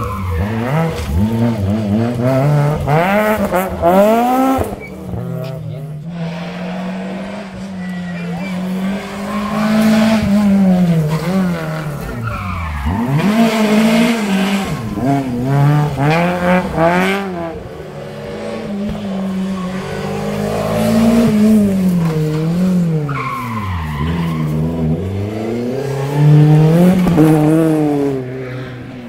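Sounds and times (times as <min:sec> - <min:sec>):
rally car engine revving: 0:00.0 - 0:29.0
tyres squealing: 0:04.6 - 0:15.2.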